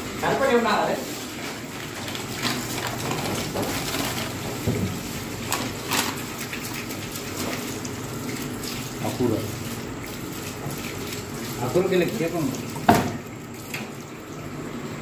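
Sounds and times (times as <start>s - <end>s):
plastic packet crinkling: 1.8s - 4.6s.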